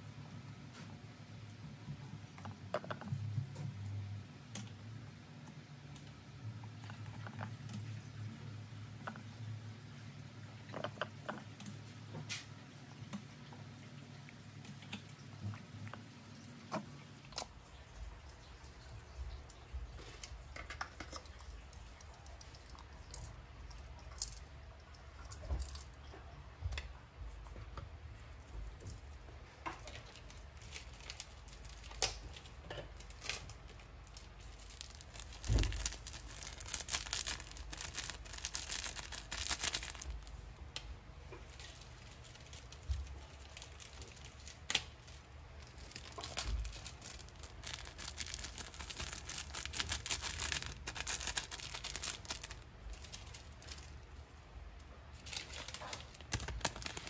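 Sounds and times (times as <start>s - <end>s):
plastic packet crinkling: 29.8s - 40.6s, 41.3s - 54.2s, 55.1s - 57.0s
salt grains falling on fish: 29.8s - 54.0s, 55.2s - 57.0s.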